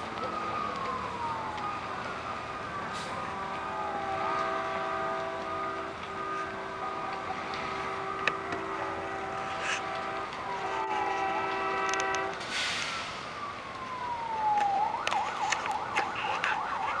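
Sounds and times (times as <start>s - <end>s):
emergency vehicle siren: 0.0s - 17.0s
train horn chord: 3.7s - 12.4s.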